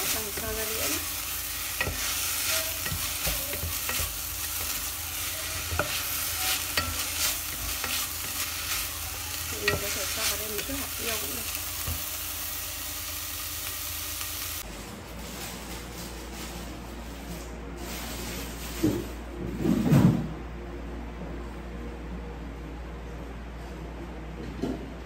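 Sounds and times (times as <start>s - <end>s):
wooden spatula scraping a pot: 0.0s - 12.1s
food sizzling in a pot: 0.0s - 14.7s.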